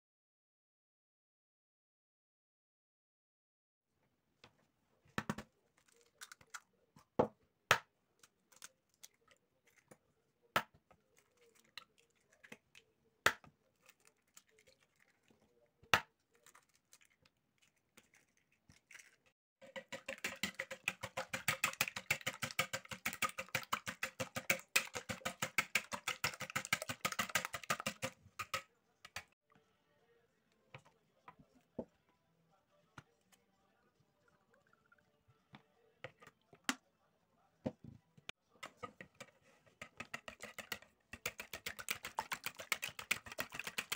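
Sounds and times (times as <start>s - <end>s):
eggs beaten in a bowl: 5.2s - 6.6s, 8.7s - 29.4s, 38.5s - 43.9s.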